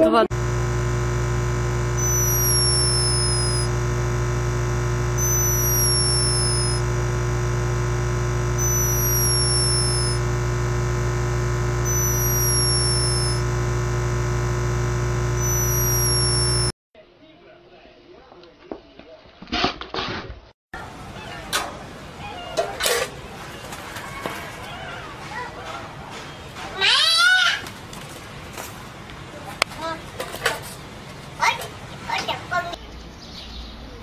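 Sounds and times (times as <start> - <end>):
steady hum: 0.3 - 16.7
hummingbird high falling whistle: 2.0 - 3.7, 5.2 - 6.8, 11.8 - 13.4.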